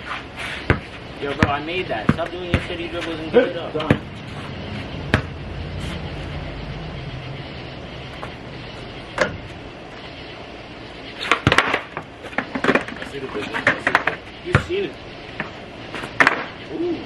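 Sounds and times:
skateboard wheels rolling on concrete: 11.1s - 17.0s
sharp skateboard knocks: 16.2s - 16.5s.

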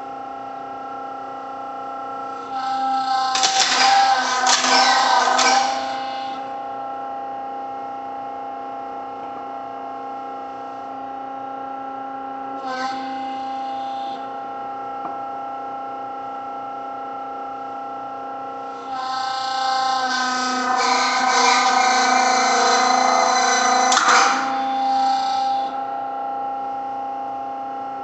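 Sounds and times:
hydraulic pump humming: 2.4s - 6.7s, 18.7s - 26.1s.

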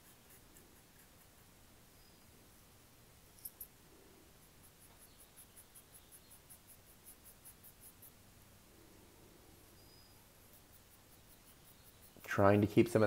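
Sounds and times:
chalk scratching on paper: 0.0s - 1.5s, 4.4s - 8.2s, 10.3s - 12.3s.

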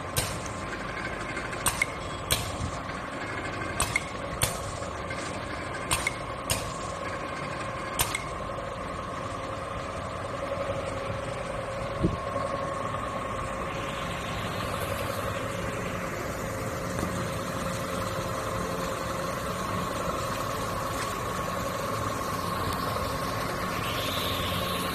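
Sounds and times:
filling machine humming: 0.0s - 24.9s
sharp clicks: 8.0s - 8.3s
hiss: 22.5s - 24.9s.

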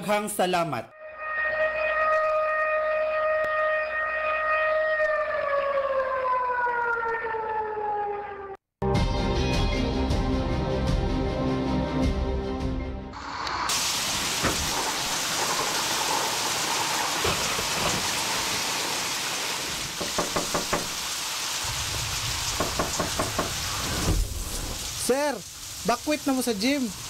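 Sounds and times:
music: 0.9s - 2.5s, 8.8s - 13.2s
heavy rain: 13.2s - 27.0s
knocking on a door: 20.0s - 21.0s, 22.6s - 23.6s.

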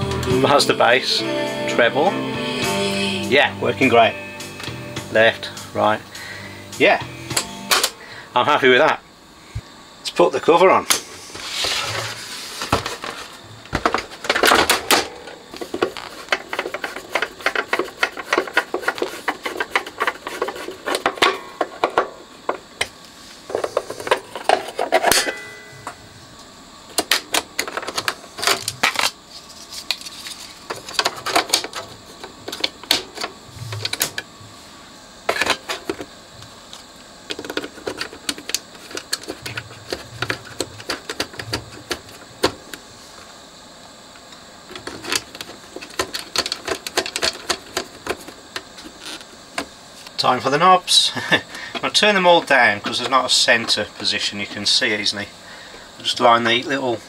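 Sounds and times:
plastic cover clicking and rattling: 37.3s - 42.6s, 44.8s - 48.4s.

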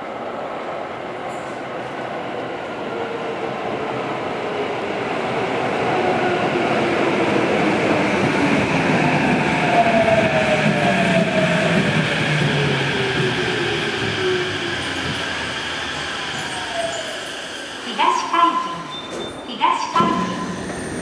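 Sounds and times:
subway train arriving: 0.0s - 21.0s.

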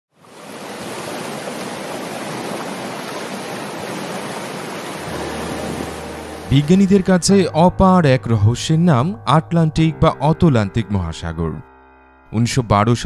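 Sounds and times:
waves breaking on rocks: 0.3s - 6.0s
low hum: 5.0s - 8.2s.

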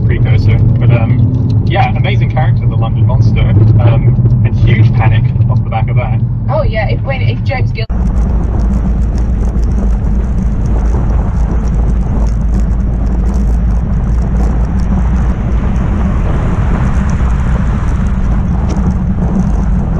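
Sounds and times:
road noise: 0.0s - 19.9s
wind buffeting microphone: 0.0s - 19.9s.

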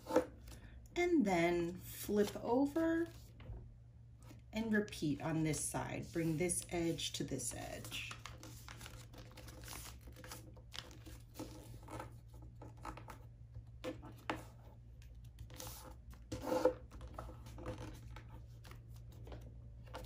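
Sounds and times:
paper rustling and scraping: 7.8s - 13.2s, 15.4s - 20.0s.

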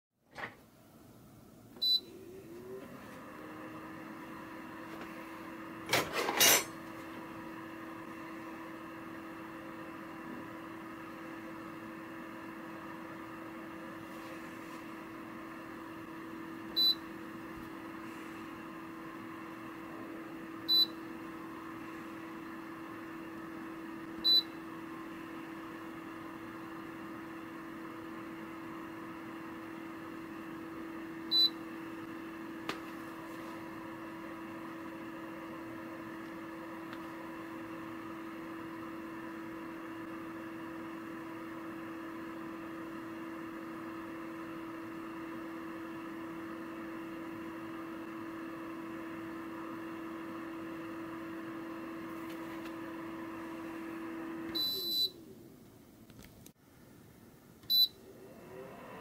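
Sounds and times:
dehumidifier fan hum: 0.6s - 59.0s.

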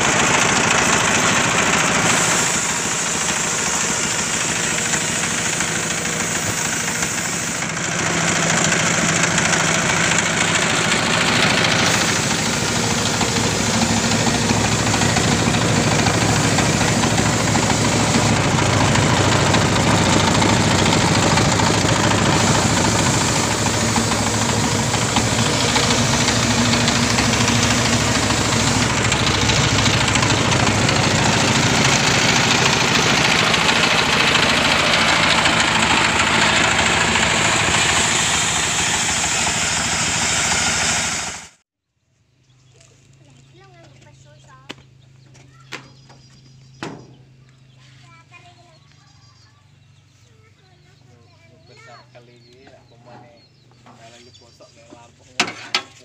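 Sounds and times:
diesel engine knocking: 0.0s - 41.6s.

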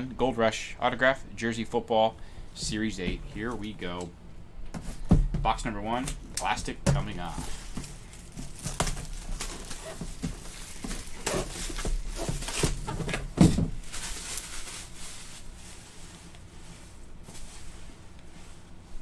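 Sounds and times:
plastic wrap crackling and rustling: 6.1s - 19.0s.

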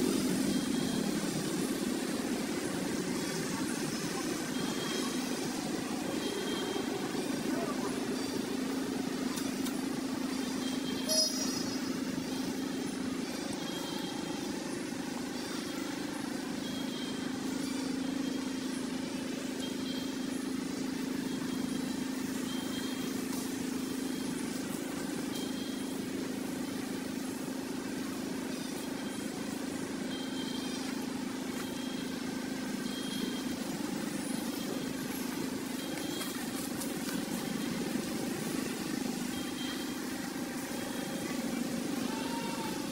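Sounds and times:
low mechanical hum: 0.0s - 42.9s
faint high chirps: 0.1s - 42.9s.

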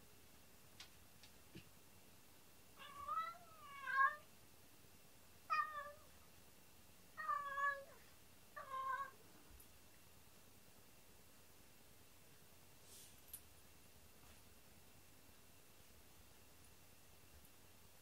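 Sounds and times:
cat meowing: 2.8s - 4.3s, 5.5s - 6.1s, 7.2s - 8.0s, 8.6s - 9.2s.

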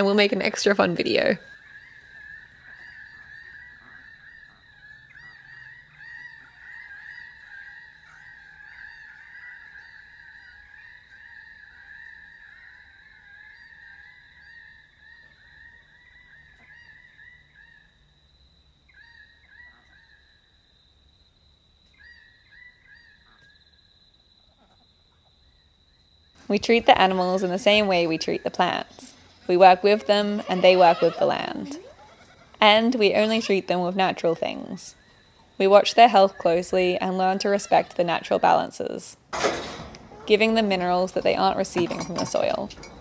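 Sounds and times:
birds honking: 0.0s - 17.9s, 26.6s - 39.0s, 40.0s - 43.0s
chorus of birds calling: 0.0s - 18.2s, 18.9s - 20.4s, 26.4s - 43.0s.

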